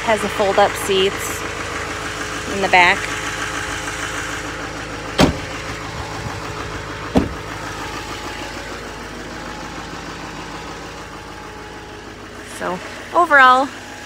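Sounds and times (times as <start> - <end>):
diesel engine idling: 0.0 - 14.0
sharp knocks: 7.1 - 7.4.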